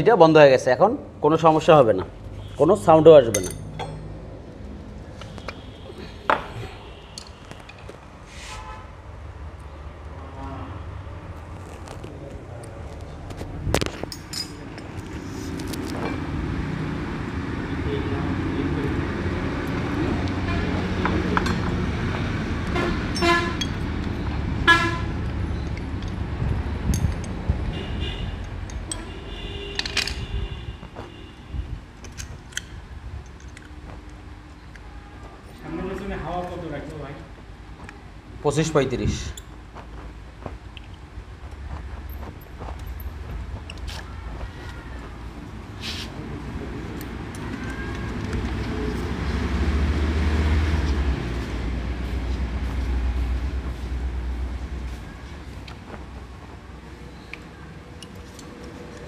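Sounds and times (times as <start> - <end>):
vehicle engine rumble: 3.2 - 59.0
metallic clinks of brake parts: 3.3 - 4.1, 14.0 - 14.9, 28.6 - 30.3.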